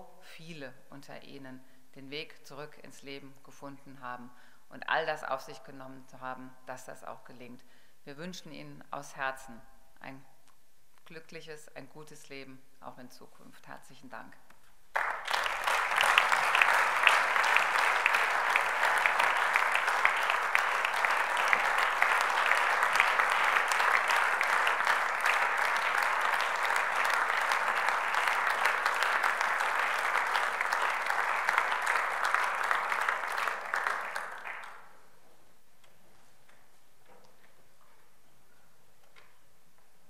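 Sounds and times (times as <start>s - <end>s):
audience applauding: 14.9s - 34.9s.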